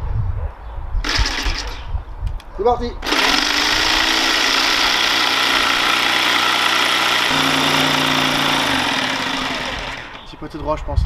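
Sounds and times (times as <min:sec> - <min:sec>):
electric jigsaw cutting wood: 0:01.0 - 0:01.8, 0:03.0 - 0:10.3.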